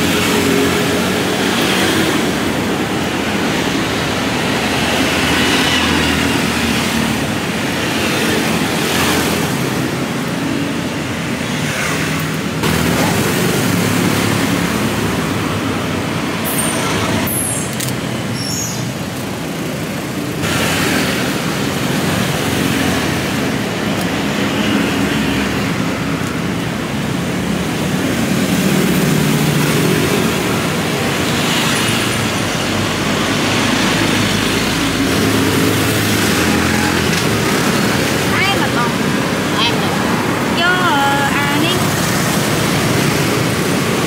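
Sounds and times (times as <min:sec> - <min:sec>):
passing vehicles: 0:00.0 - 0:44.0.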